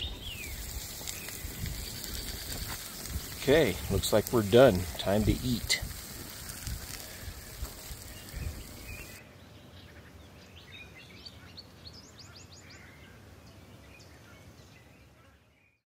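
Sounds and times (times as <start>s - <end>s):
steady hiss with low rumble: 0.0s - 9.6s
small birds chirping: 0.0s - 13.0s.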